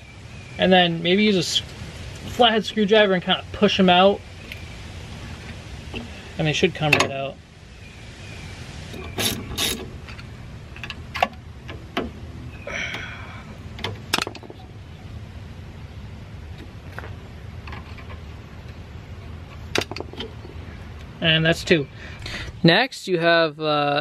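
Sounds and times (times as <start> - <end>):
ratcheting rasp: 8.9 - 10.2.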